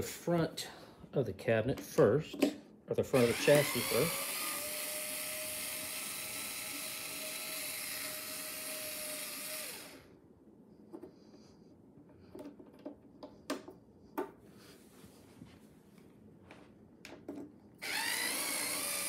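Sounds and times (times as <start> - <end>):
cordless screwdriver whirring: 3.2 - 10.1, 17.8 - 19.0.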